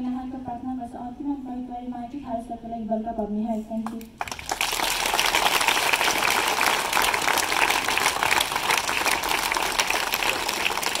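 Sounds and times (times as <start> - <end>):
children applauding: 4.2 - 11.0.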